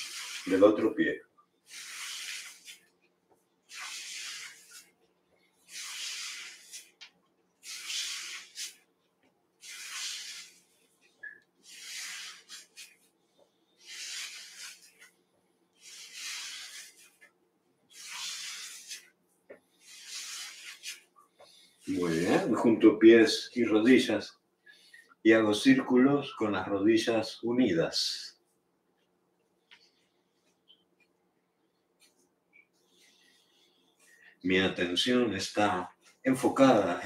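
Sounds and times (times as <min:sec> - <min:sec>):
foot rubbing on floor: 0:01.7 - 0:02.9, 0:03.7 - 0:05.0, 0:05.7 - 0:08.8, 0:09.6 - 0:15.2, 0:15.8 - 0:17.3, 0:17.9 - 0:22.5.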